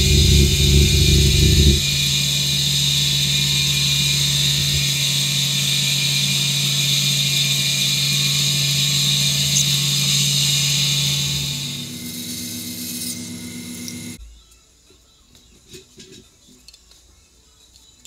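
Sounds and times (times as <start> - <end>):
low rumble: 0.0 - 6.4
sanding hiss: 0.0 - 14.2
wood lathe humming: 0.0 - 14.2.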